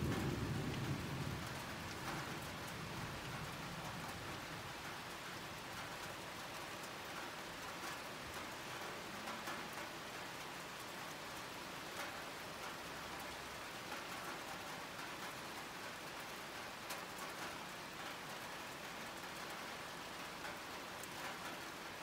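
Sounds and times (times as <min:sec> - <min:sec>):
sharp taps of raindrops: 0:00.0 - 0:22.0
steady rain falling: 0:00.0 - 0:22.0.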